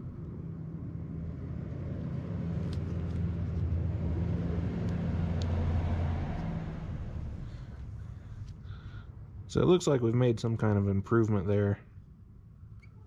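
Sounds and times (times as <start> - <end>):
low motor hum: 0.0 - 9.4.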